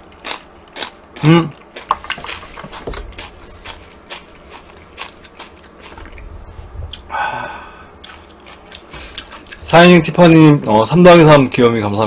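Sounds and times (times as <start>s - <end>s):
chewing noodles: 0.1s - 6.3s, 7.9s - 11.0s.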